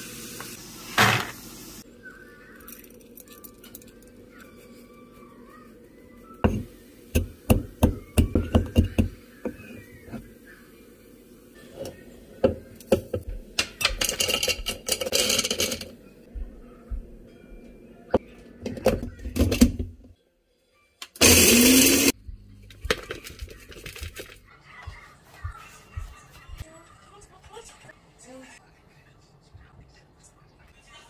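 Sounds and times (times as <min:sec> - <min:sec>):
kitchen utensils clattering: 0:12.8 - 0:16.0
blender motor grinding: 0:21.2 - 0:22.2.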